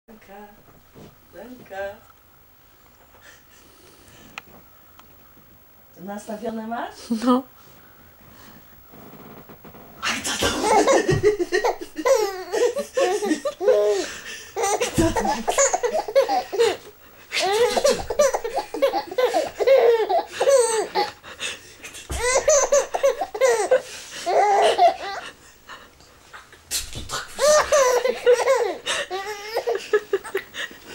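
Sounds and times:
baby laughing: 10.5s - 21.2s, 22.0s - 25.3s, 27.1s - 30.5s.

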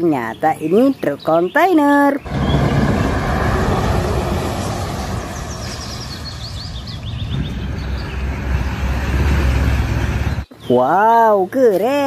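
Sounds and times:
truck diesel engine passing: 2.2s - 10.5s.

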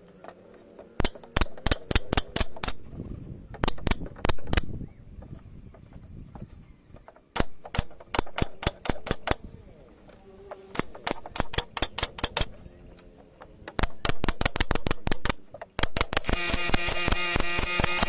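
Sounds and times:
nail gun firing into wood: 1.0s - 2.8s, 3.5s - 4.8s, 7.3s - 9.4s, 10.7s - 12.6s, 13.7s - 18.0s.

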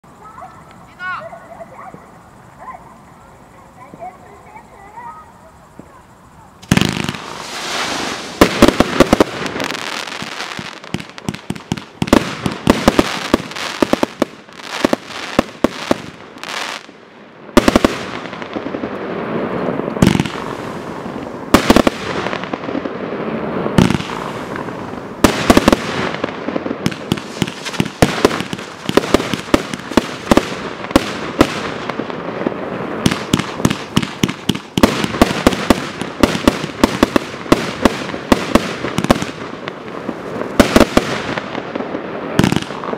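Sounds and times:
firework tube launches: 6.6s - 11.5s, 26.9s - 31.9s
firework aerial bangs: 6.6s - 42.9s.

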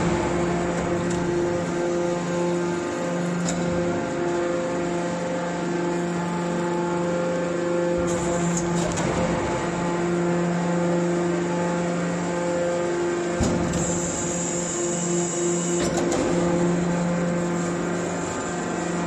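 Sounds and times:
hydraulic power unit humming: 0.0s - 19.0s.

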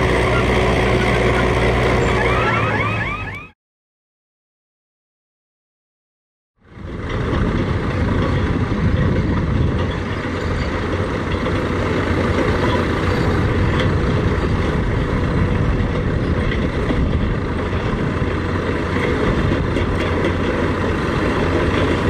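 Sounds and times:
diesel engine under load: 0.0s - 3.6s, 6.6s - 22.0s.

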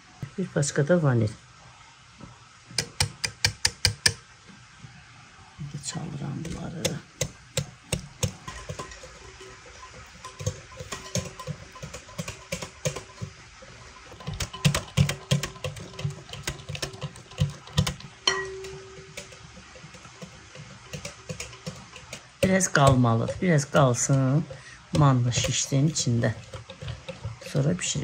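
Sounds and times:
utensil knocking against bowl: 6.4s - 13.4s, 14.0s - 28.0s.

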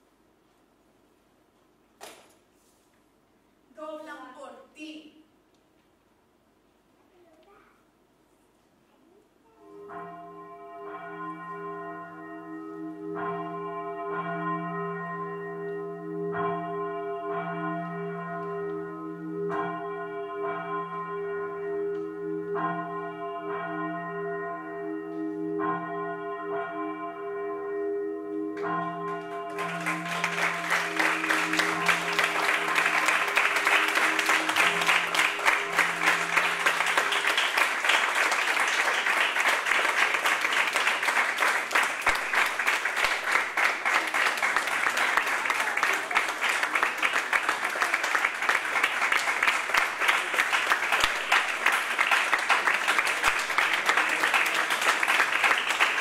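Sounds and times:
church bell tolling: 9.7s - 38.5s
audience applause: 29.5s - 56.0s.

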